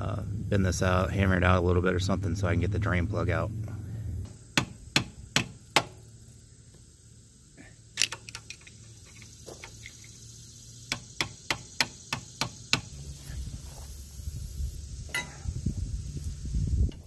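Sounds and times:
low rumbling handling noise: 0:00.0 - 0:05.3.

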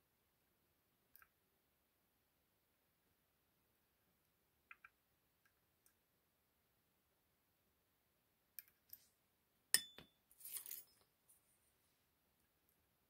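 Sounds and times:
sharp metallic clink: 0:09.8 - 0:11.0.

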